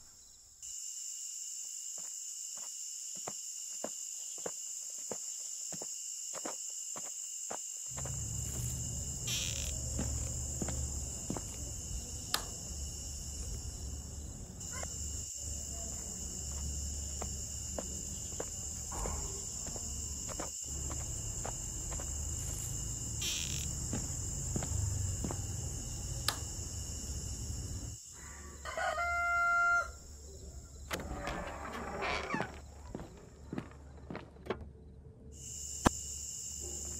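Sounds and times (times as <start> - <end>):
rooster crowing: 28.2 - 30.0.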